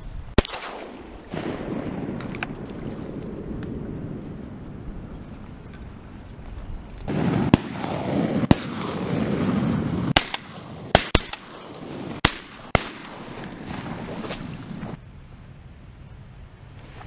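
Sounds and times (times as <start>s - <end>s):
shotgun shots: 0.4s - 3.2s, 7.1s - 14.2s.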